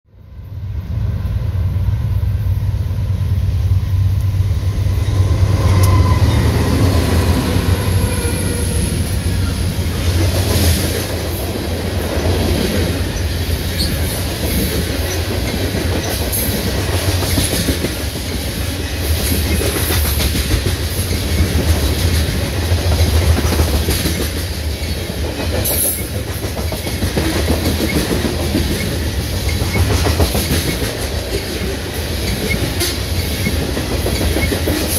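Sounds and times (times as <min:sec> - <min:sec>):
freight train rumbling past: 0:00.1 - 0:34.9
wheels clacking over rail joints: 0:09.2 - 0:34.9.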